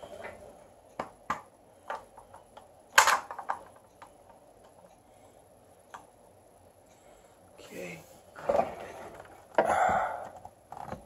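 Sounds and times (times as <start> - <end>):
plastic clatter: 3.0 - 3.7.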